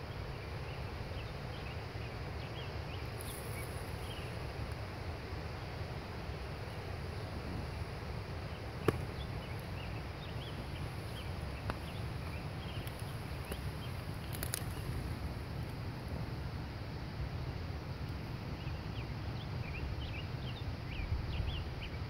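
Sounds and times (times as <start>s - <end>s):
faint high chirping calls: 0.0s - 4.5s, 6.3s - 15.3s
wind rumble on microphone: 0.0s - 22.0s
small clicks: 14.2s - 15.0s.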